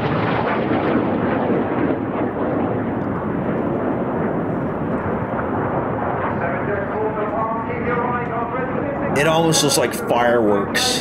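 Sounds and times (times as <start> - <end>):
jets flying overhead: 0.0 - 11.0.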